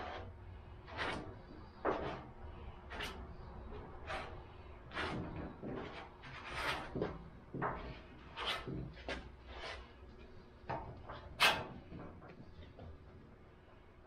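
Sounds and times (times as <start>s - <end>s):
spreader scraping filler on metal: 0.0s - 10.0s.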